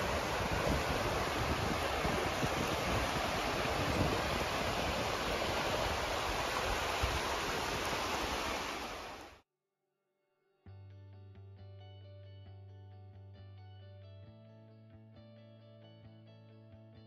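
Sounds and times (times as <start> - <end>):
sea surf rushing: 0.0 - 9.4
wind: 0.0 - 9.4.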